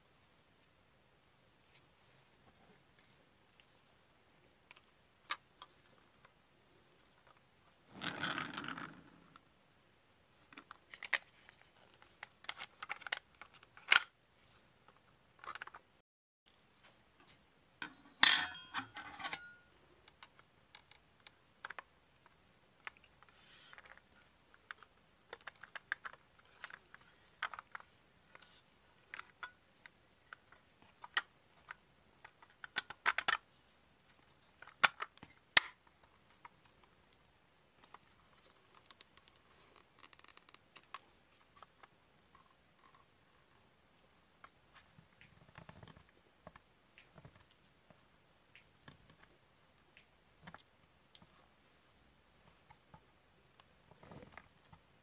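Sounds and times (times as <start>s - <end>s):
small parts clicking and tapping: 20.0s - 33.4s, 37.8s - 41.9s.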